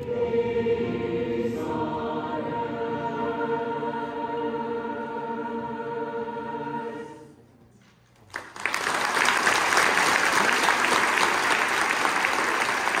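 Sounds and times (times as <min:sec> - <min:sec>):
choir holding final chord: 0:00.0 - 0:07.4
audience applauding: 0:08.2 - 0:13.0.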